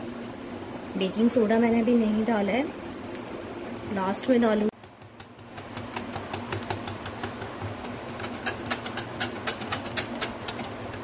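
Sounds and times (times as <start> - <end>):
wire whisk scraping glass bowl: 7.8 - 11.0.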